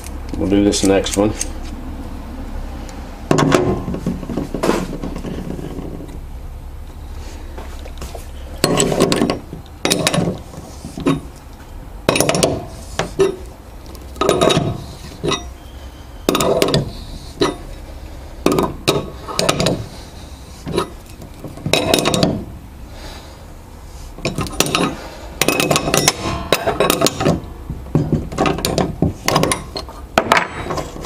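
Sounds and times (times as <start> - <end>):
metallic clicking and clinking: 24.2 - 31.0.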